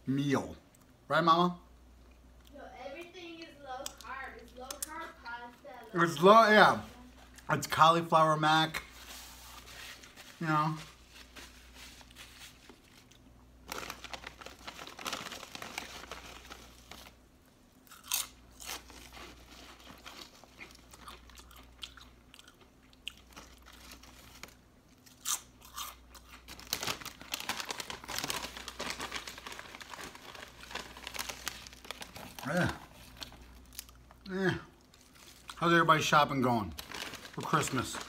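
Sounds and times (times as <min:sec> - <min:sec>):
chewing and crunching sandwich: 0:11.6 - 0:35.6.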